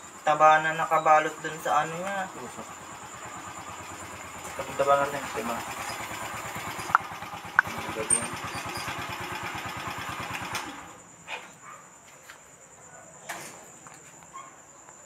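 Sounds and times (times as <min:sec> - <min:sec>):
motorcycle engine running: 0:00.0 - 0:11.0
crickets chirping: 0:00.0 - 0:15.0
sharp clicks: 0:06.8 - 0:07.8.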